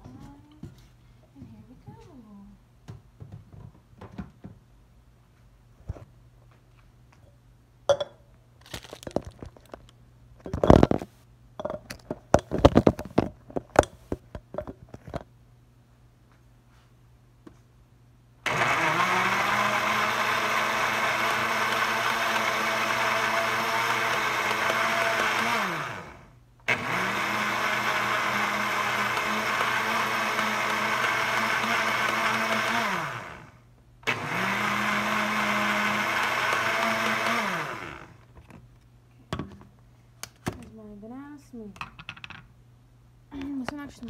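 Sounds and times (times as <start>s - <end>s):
blender motor whining: 18.5s - 38.2s.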